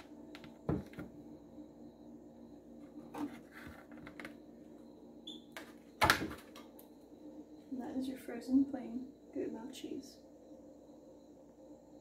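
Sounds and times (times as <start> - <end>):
faint steady hum: 0.0 - 12.0
plastic scraping and rubbing: 2.8 - 4.4.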